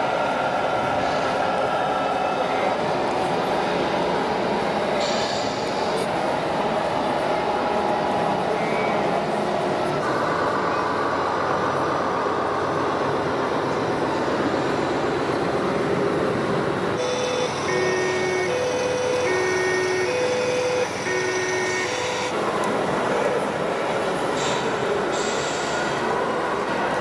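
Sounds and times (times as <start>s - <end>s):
two-tone siren: 17.0s - 22.4s.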